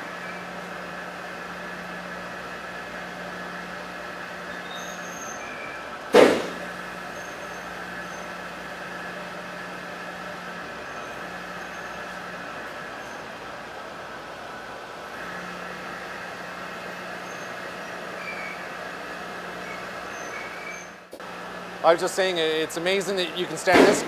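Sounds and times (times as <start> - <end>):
booth ventilation running: 0.0 - 24.0
loud short air blast: 6.1 - 6.7, 23.7 - 24.0.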